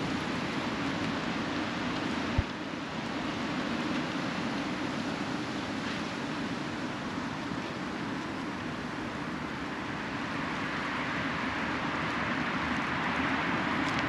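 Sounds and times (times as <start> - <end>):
distant road traffic: 5.8 - 14.0.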